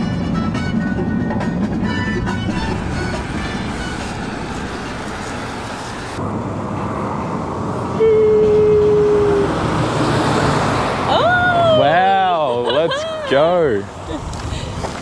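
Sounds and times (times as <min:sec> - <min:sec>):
passing vehicles: 0:00.0 - 0:15.0
loud steady tone: 0:02.4 - 0:06.2.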